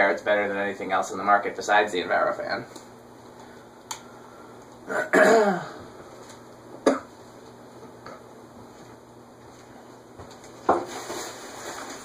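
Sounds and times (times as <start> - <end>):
low steady hum: 0.0 - 12.0
man clearing his throat: 4.9 - 5.8, 6.8 - 7.1.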